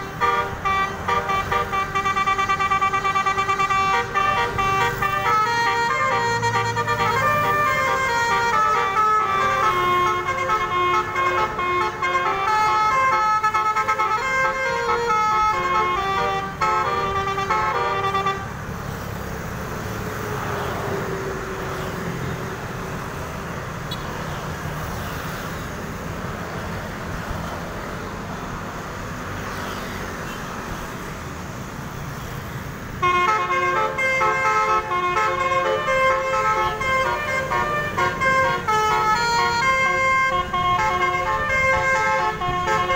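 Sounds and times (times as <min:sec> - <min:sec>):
bus air horn playing a tune: 0:00.0 - 0:18.6, 0:33.0 - 0:42.9
passing traffic: 0:00.0 - 0:42.9.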